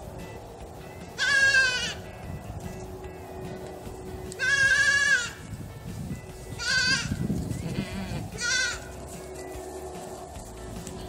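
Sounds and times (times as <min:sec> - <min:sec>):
goat kid bleating: 0:01.2 - 0:02.0, 0:04.3 - 0:05.4, 0:06.5 - 0:08.9.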